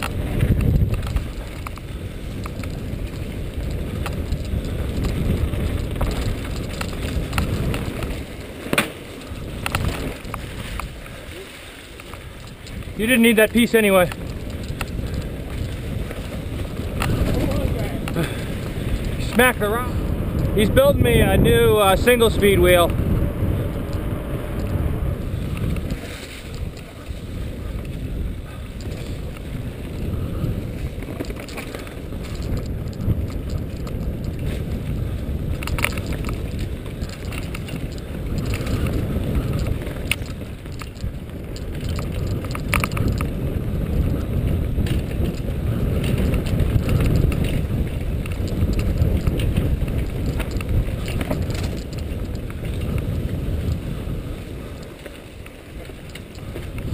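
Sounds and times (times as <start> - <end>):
bike knocking over bumps: 0.0 - 11.0, 14.1 - 19.5, 25.4 - 53.9
bike rolling and rattling: 0.0 - 56.9
wind rumble on microphone: 0.0 - 56.9.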